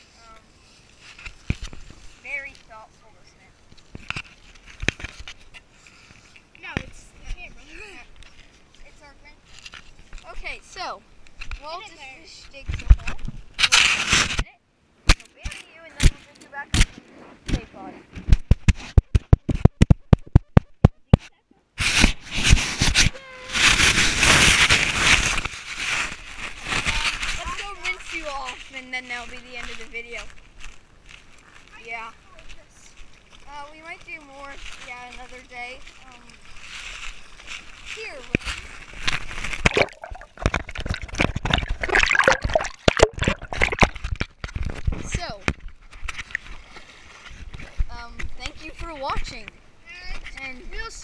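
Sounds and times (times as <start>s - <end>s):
sand scraping and rubbing: 13.6s - 14.5s, 21.8s - 30.4s
water splashing against camera: 16.0s - 30.2s, 37.9s - 48.4s.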